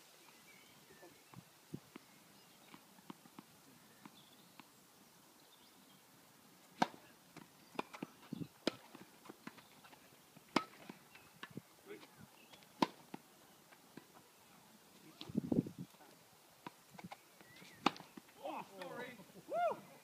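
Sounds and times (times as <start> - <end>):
tennis balls struck by rackets: 6.6 - 14.2, 16.6 - 19.0.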